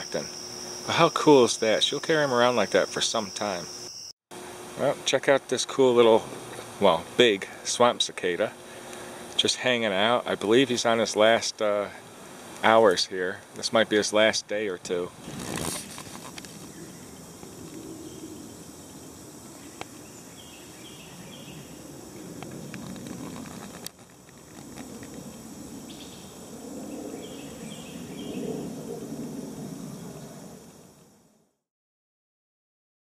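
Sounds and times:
insects trilling: 0:00.0 - 0:31.3
low hum: 0:14.8 - 0:31.1.

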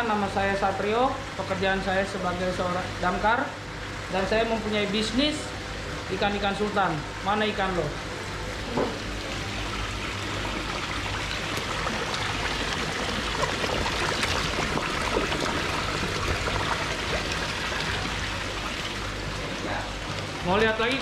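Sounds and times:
water pouring and splashing: 0:08.9 - 0:21.0.

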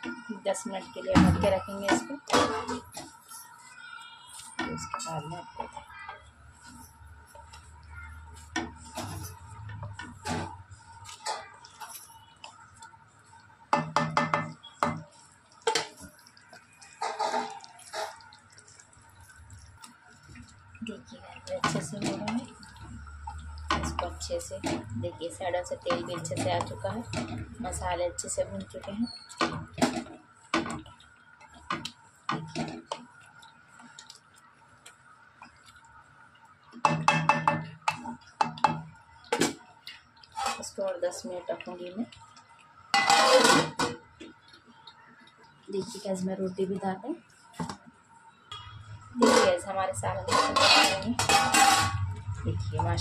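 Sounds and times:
utensil knocking on metal pot: 0:13.8 - 0:15.0, 0:36.8 - 0:38.9
wooden spoon scraping metal pan: 0:43.0 - 0:43.9, 0:49.2 - 0:52.9.

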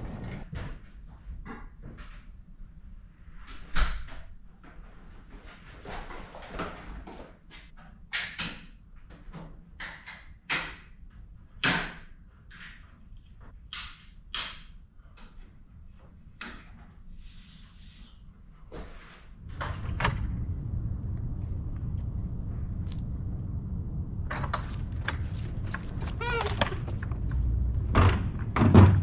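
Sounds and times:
steady low rumble: 0:18.3 - 0:29.0
stepladder knocks and clatters: 0:24.4 - 0:29.0.

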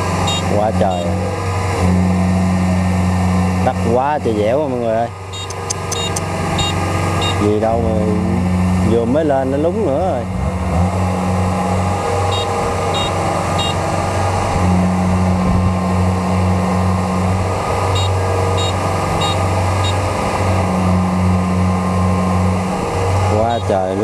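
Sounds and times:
diesel engine running hard: 0:00.0 - 0:24.0
short high beeps: 0:00.3 - 0:01.1, 0:05.3 - 0:07.4, 0:12.3 - 0:13.8, 0:18.0 - 0:20.0.

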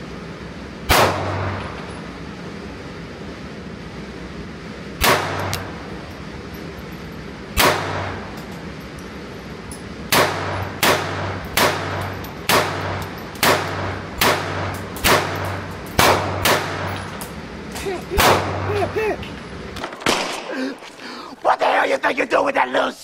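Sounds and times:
pistol shots echoing indoors: 0:00.9 - 0:01.6, 0:05.0 - 0:05.6, 0:07.6 - 0:08.3, 0:10.1 - 0:17.0, 0:20.0 - 0:20.5.

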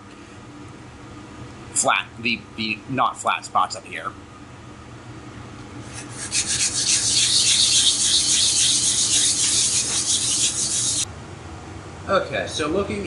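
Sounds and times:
hand sanding on sandpaper: 0:05.9 - 0:11.1.

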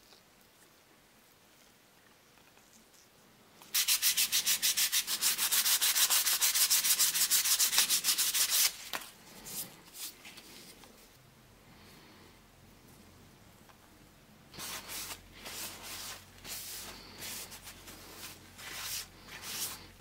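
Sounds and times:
sandpaper rubbing on wood: 0:03.7 - 0:08.8, 0:14.6 - 0:19.9.

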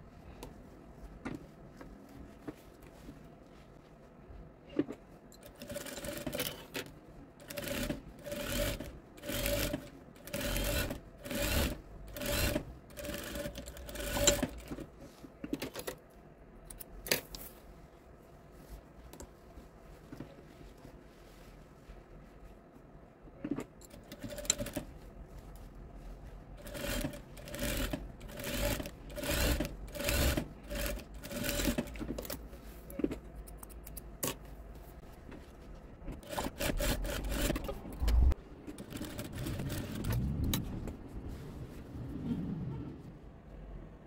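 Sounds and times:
sewing machine stitching: 0:05.4 - 0:14.8, 0:26.6 - 0:32.3, 0:36.1 - 0:40.2.

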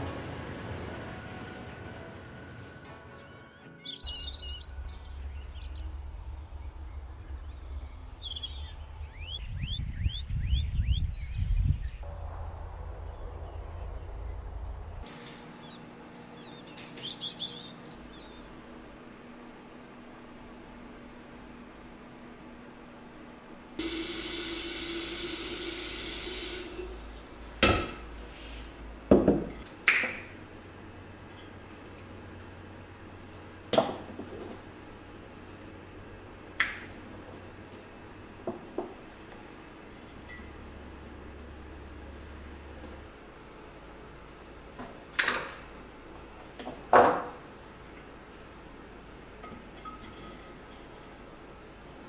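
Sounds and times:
faucet filling glass vase: 0:23.8 - 0:27.2.

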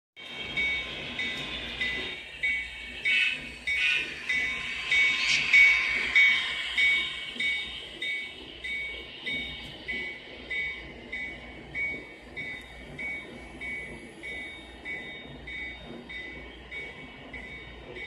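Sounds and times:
model train rumble: 0:00.2 - 0:18.0
electronic bell ringing: 0:00.6 - 0:09.6.

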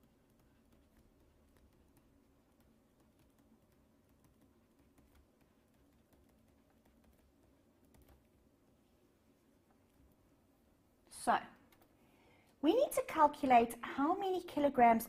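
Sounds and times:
stylus tapping on tablet screen: 0:00.0 - 0:08.6.

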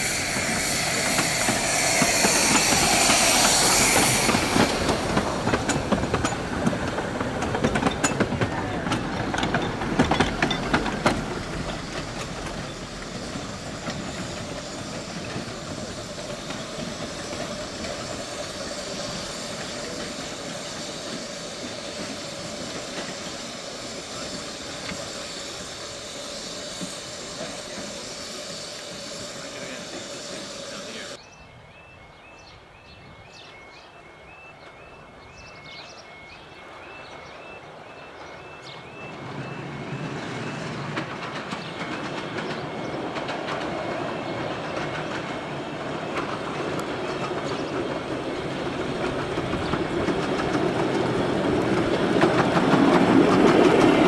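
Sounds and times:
steam hiss: 0:00.0 - 0:31.2, 0:38.6 - 0:54.0
steam train wheels clattering: 0:00.0 - 0:31.2, 0:37.0 - 0:54.0
faint high chirp: 0:31.2 - 0:40.8.

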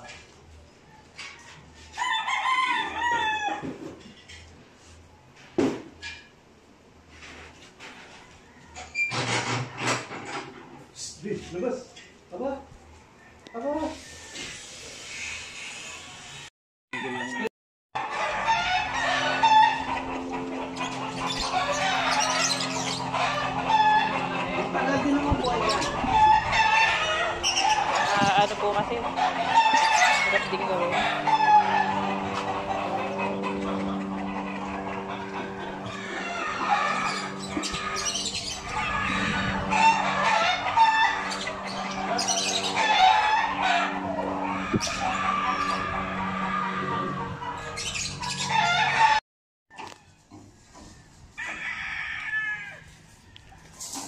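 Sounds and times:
roosters crowing: 0:00.7 - 0:04.2, 0:07.1 - 0:10.9, 0:13.0 - 0:54.0
chickens squawking: 0:18.0 - 0:49.2
hens clucking: 0:18.0 - 0:49.2
steady low hum: 0:18.8 - 0:29.6, 0:30.3 - 0:47.7.

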